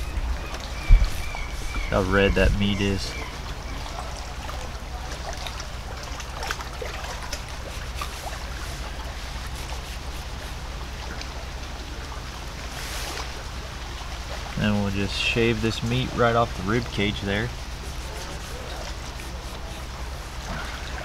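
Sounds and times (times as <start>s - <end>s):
flowing water: 0.0s - 21.0s
knife cutting along fish ribs: 17.5s - 20.4s.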